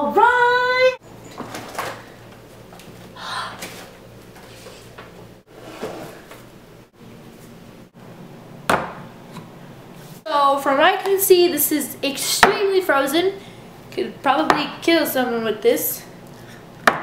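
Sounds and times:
refrigerator low hum: 0.0s - 10.9s.

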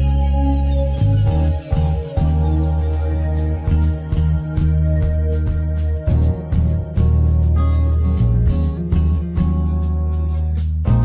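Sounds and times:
background music with deep bass: 0.0s - 11.0s.

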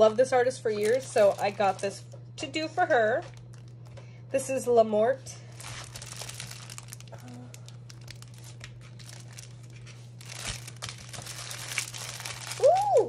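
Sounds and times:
steady low hum: 0.0s - 13.0s
plastic packaging crinkling: 0.6s - 2.1s, 3.2s - 4.0s, 5.4s - 13.0s.

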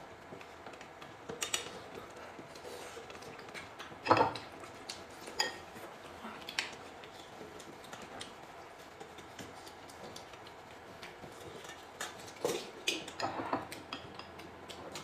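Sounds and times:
tableware clinking: 4.0s - 4.4s, 13.1s - 13.7s.

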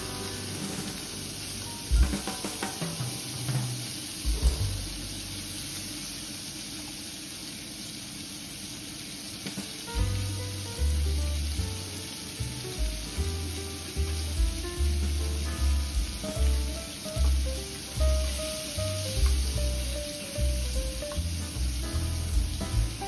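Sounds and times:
background music with bass: 0.0s - 5.6s, 10.0s - 23.0s
meat sizzling in a frying pan: 0.0s - 23.0s
spatula knocking on pan: 1.9s - 4.8s, 19.2s - 19.9s.

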